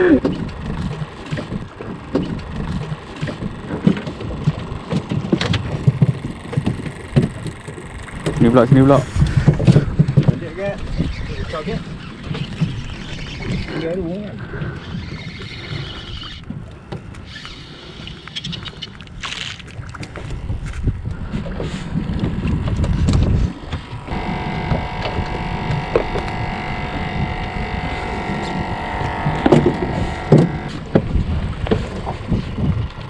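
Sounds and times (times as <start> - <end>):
steady rumble: 0.0 - 13.7, 20.1 - 33.0
wind buffeting microphone: 4.2 - 17.1, 20.0 - 33.0
steady high whine: 23.8 - 31.0
sharp knocks: 28.4 - 31.1.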